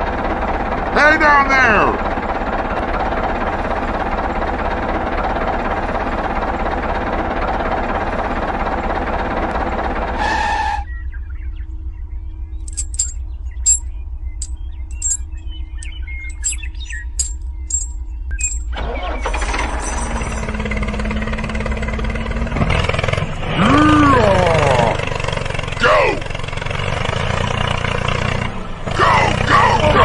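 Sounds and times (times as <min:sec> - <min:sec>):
low hum with steady tone: 0:10.8 - 0:18.8
short high chirps and clicks: 0:14.9 - 0:18.7
dense layered drone: 0:20.4 - 0:27.3.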